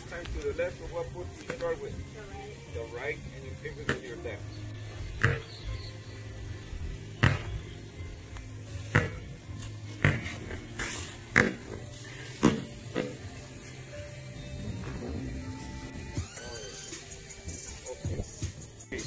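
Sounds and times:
basketball bouncing on concrete: 3.7s - 4.2s, 5.0s - 5.8s, 7.1s - 7.8s, 8.8s - 13.3s
steady low hum: 5.9s - 17.6s.

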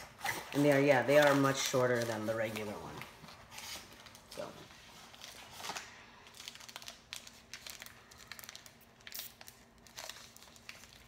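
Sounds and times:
snack wrapper crinkling: 5.2s - 11.0s.

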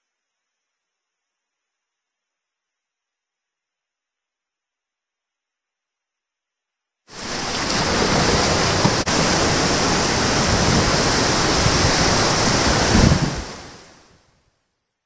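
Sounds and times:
rushing whitewater: 7.1s - 14.1s.

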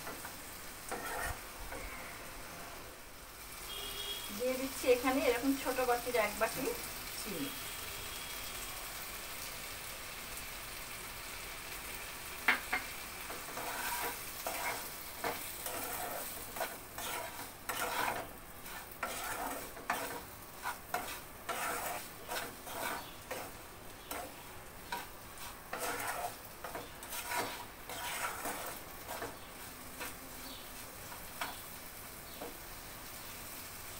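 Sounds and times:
hot pan sizzling: 0.0s - 33.9s
spatula scraping pan: 0.9s - 2.9s, 12.5s - 31.7s
spatula knocking on pan: 12.5s - 12.9s.

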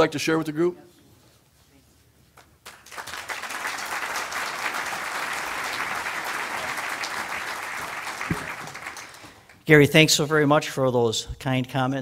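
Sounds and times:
audience applauding: 2.6s - 9.6s.

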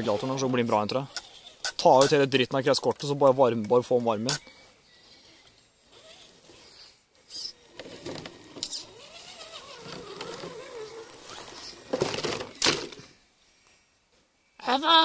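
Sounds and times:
electric motor whining: 7.6s - 11.9s.

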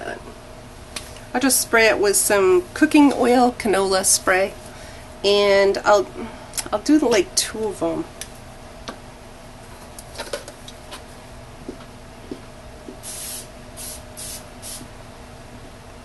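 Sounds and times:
aerosol can spraying: 13.0s - 14.9s.

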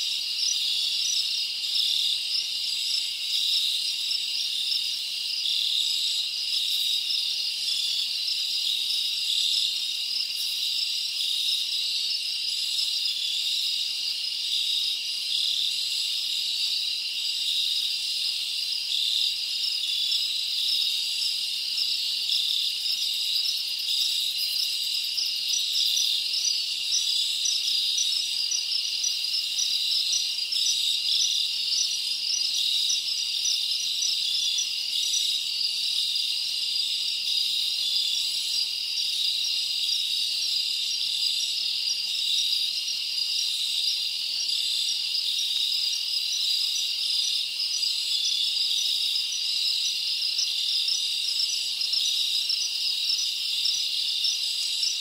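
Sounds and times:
insects chirping: 0.0s - 55.0s.

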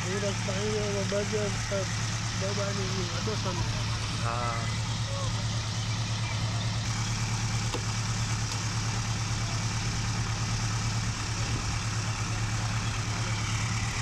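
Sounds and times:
engine idling: 0.0s - 14.0s.

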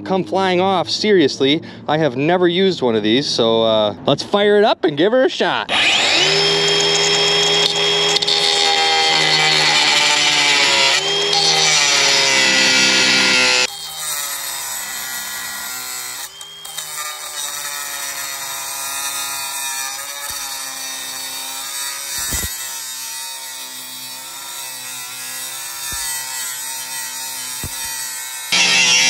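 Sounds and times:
angle grinder cutting steel: 5.7s - 29.0s.

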